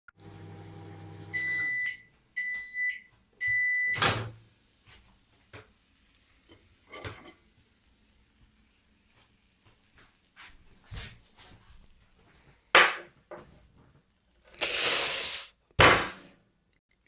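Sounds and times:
microwave oven humming: 0.2 - 4.4.

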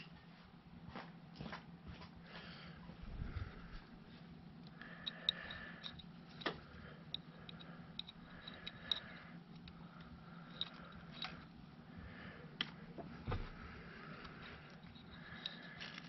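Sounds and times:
faint steady hum: 0.0 - 16.0
metal pick clicking and scraping: 4.6 - 11.6, 14.2 - 16.0.

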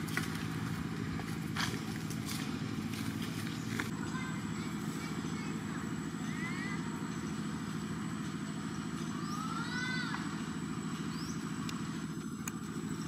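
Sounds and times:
low engine rumble: 0.0 - 13.0
short chirping calls: 11.0 - 13.0.

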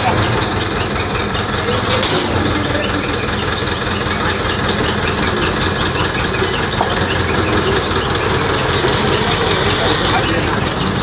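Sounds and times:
heavy crane engine running: 0.0 - 11.0.

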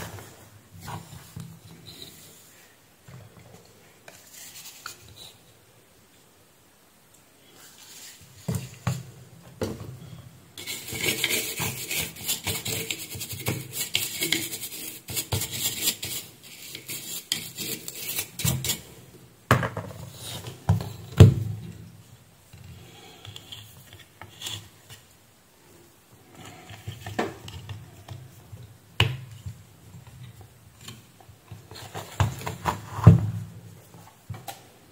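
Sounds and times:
scratchy scrubbing of circuit board: 10.6 - 18.8.

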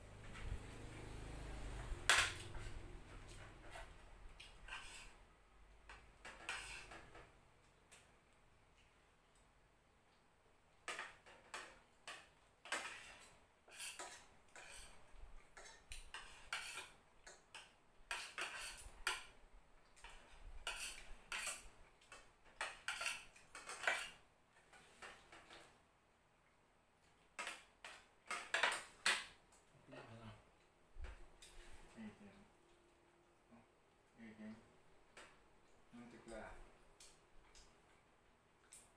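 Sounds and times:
cutlery clinking on plates: 10.9 - 19.4, 20.0 - 24.2, 27.4 - 29.4.

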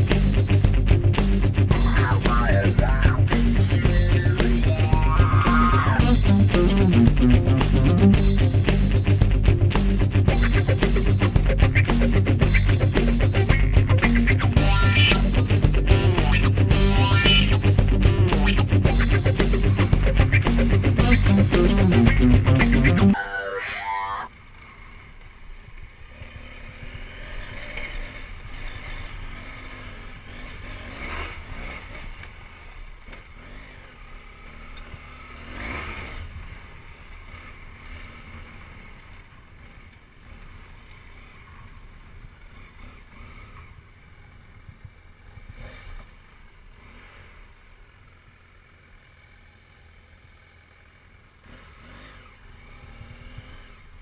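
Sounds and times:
motorcycle engine: 0.0 - 54.0.

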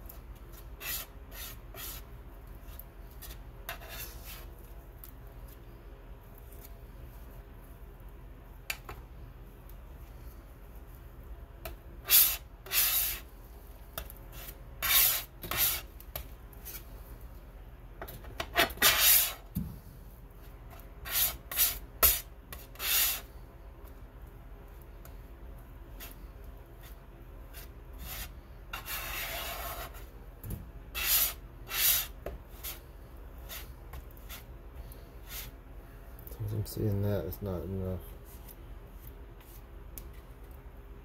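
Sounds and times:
palette knife scraping paint: 0.1 - 4.8, 11.6 - 13.3, 14.0 - 16.9, 18.4 - 19.4, 20.7 - 23.3, 25.9 - 30.1, 30.9 - 32.8, 33.4 - 34.6.

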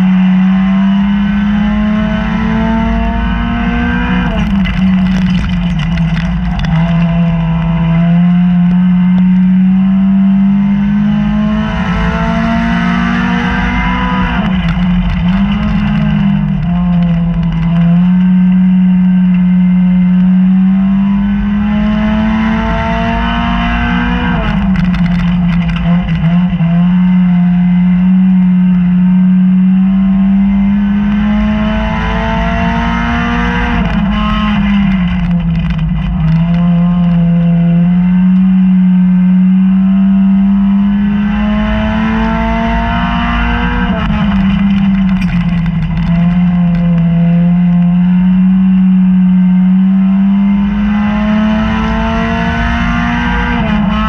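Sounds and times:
race car engine revving: 0.0 - 54.0
rattling clatter: 4.3 - 8.2, 13.9 - 18.1, 24.4 - 26.7, 43.7 - 47.2.

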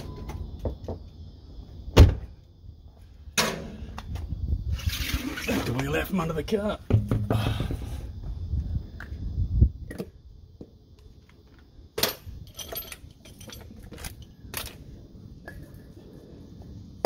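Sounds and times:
heavy thump: 6.9 - 8.0
metallic clicks and clinks: 12.0 - 14.8.

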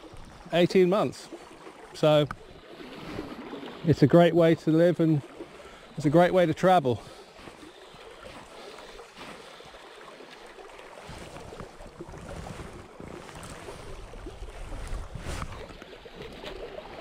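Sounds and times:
river current rushing: 0.0 - 17.0
wind buffeting microphone: 11.4 - 15.7.

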